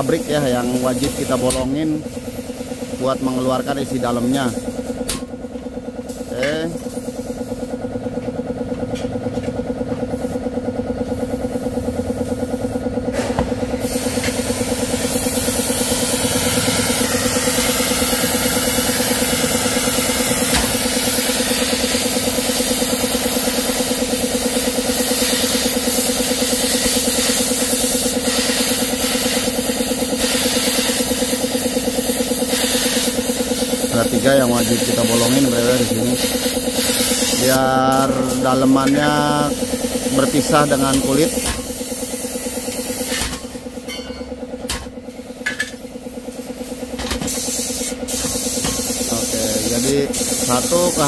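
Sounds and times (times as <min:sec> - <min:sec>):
gas torch hissing: 0:00.0 - 0:05.1, 0:11.4 - 0:43.5, 0:46.2 - 0:51.0
pulsing engine-like drone: 0:13.6 - 0:28.4.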